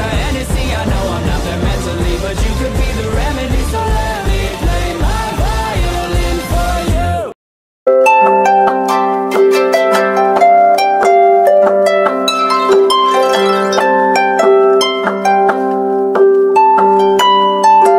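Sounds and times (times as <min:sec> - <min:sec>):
harp-like plucked strings music: 0:07.9 - 0:17.9.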